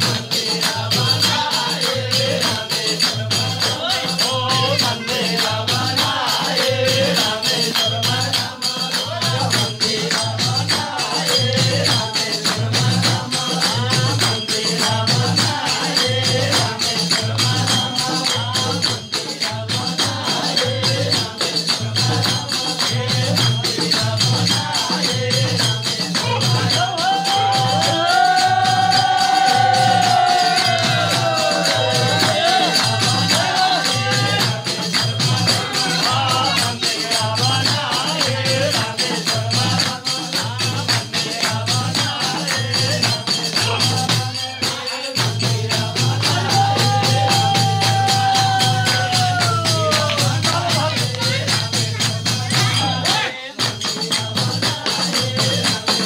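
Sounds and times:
jingling percussion: 0:00.0 - 0:56.0
voices singing: 0:00.0 - 0:56.0.

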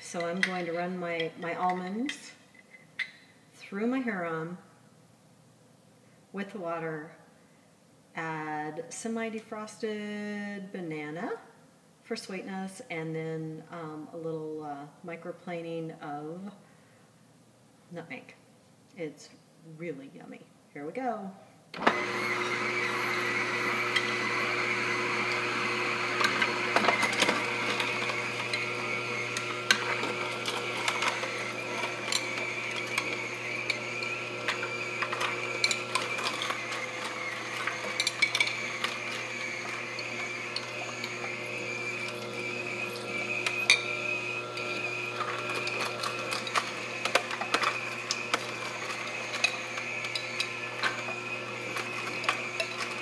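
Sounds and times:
auger grinding nuts: 0:21.8 - 0:53.0
juicer motor hum and whine: 0:21.8 - 0:53.0.

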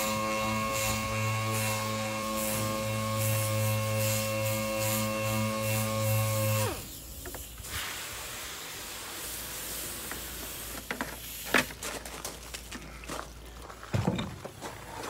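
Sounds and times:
water hissing from hose nozzle: 0:00.7 - 0:11.6.

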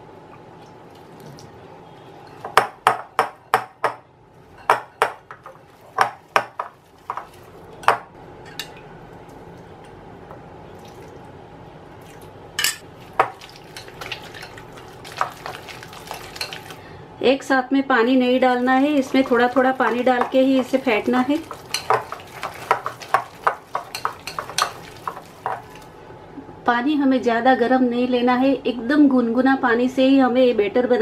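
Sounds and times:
quick whisking: 0:18.4 - 0:25.9
spoon clinking against glass bowl: 0:21.4 - 0:25.8.

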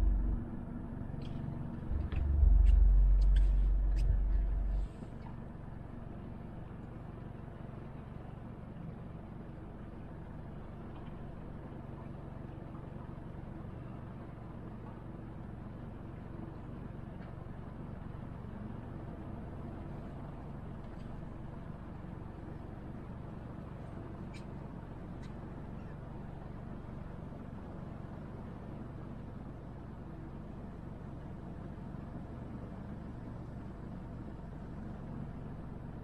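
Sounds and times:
motorboat engine humming: 0:00.0 - 0:08.7.

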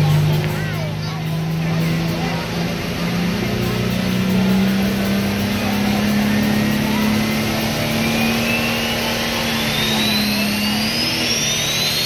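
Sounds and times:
tractor engine running loud: 0:00.0 - 0:12.0
high rising whistle: 0:06.2 - 0:12.0.

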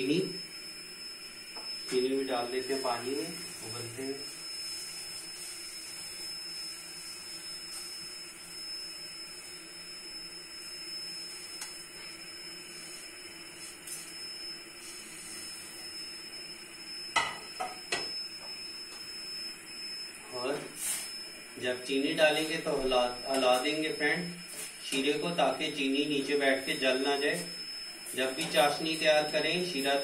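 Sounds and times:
pot hissing on gas stove: 0:02.0 - 0:18.4, 0:20.2 - 0:21.1.

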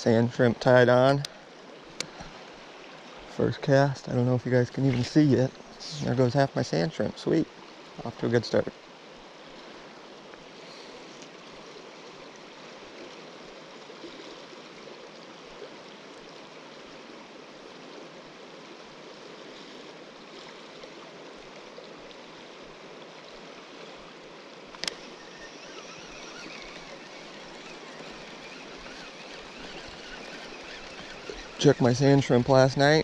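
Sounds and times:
river rushing: 0:19.4 - 0:33.0
sharp click: 0:24.7 - 0:25.0.

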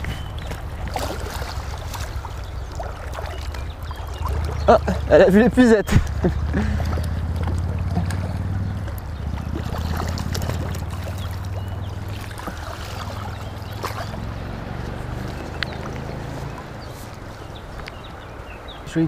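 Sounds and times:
river current rushing: 0:00.0 - 0:19.0
fish splashing at surface: 0:06.0 - 0:17.5.

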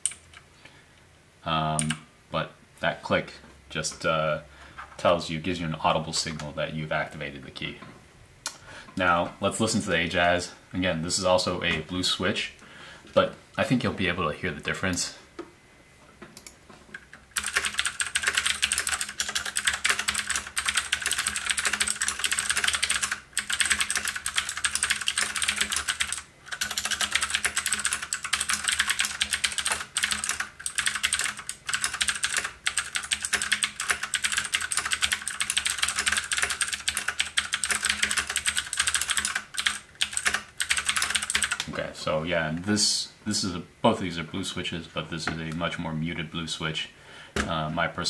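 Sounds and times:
mechanical keyboard typing: 0:17.1 - 0:41.7.

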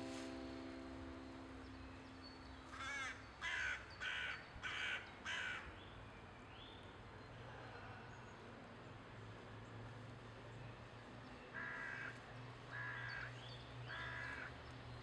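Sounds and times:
crow cawing: 0:02.7 - 0:05.6, 0:11.6 - 0:13.3, 0:13.9 - 0:14.5.

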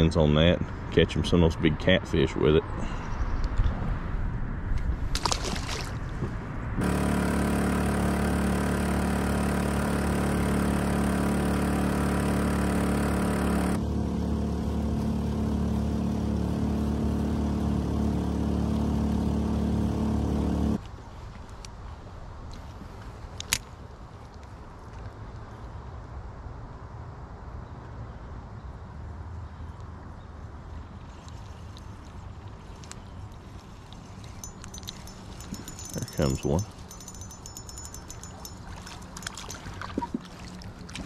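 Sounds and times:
fish splashing into water: 0:05.1 - 0:06.0
outboard motor running: 0:06.8 - 0:20.8, 0:34.2 - 0:41.0.

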